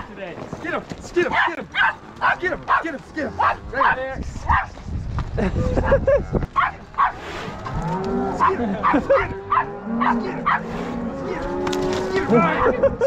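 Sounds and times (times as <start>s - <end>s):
cows mooing and bawling: 6.6s - 13.0s.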